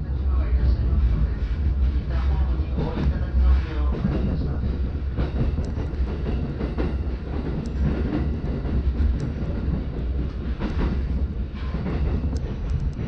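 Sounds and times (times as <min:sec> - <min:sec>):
train rumbling: 0:00.0 - 0:13.0
faint clicks: 0:09.0 - 0:09.4.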